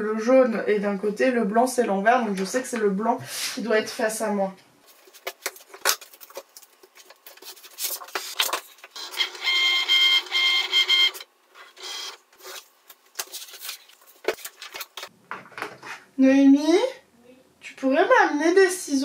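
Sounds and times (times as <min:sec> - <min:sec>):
clicks and rustling of sheets: 0:04.9 - 0:09.0, 0:12.3 - 0:16.0.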